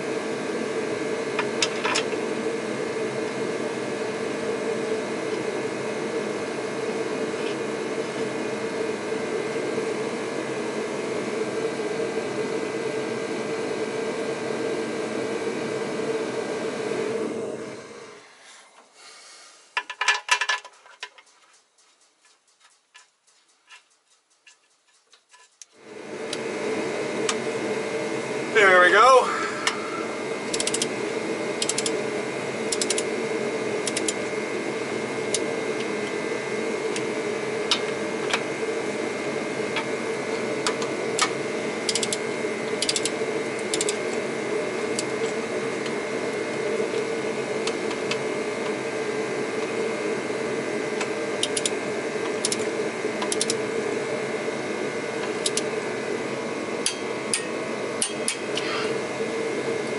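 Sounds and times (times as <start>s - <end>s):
steady background hum: 0.0s - 59.9s
ratchet clicking: 42.8s - 43.1s.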